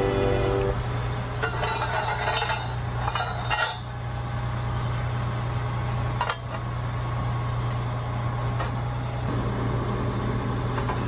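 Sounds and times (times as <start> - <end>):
metallic clanks: 1.4 - 3.9.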